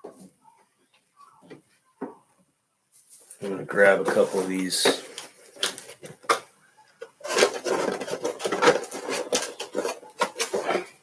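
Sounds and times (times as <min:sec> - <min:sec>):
card packs rustling: 0:03.2 - 0:11.0.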